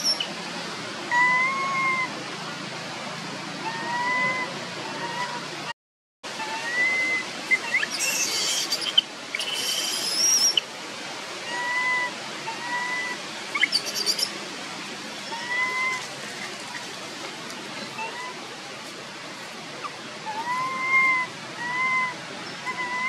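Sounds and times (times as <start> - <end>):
baby monkey coo calls: 0.0 - 0.2, 1.1 - 2.2, 3.6 - 5.5, 6.4 - 10.6, 11.4 - 14.3, 15.2 - 16.1, 17.9 - 18.5, 19.8 - 23.0
monkey shrill squeaks: 6.7 - 10.6, 13.6 - 14.3.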